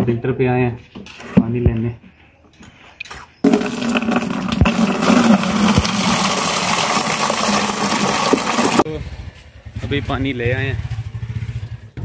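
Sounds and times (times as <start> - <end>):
tap water splashing into jug: 3.5 - 8.8.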